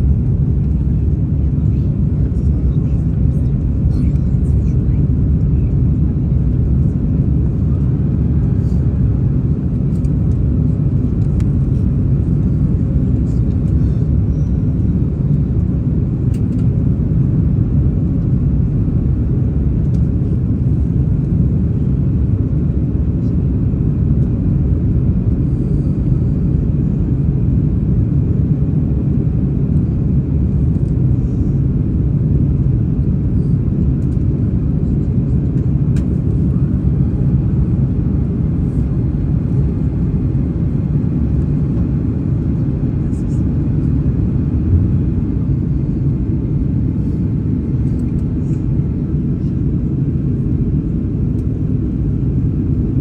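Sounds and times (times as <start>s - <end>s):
jet engines roaring inside cabin: 0.0s - 53.0s.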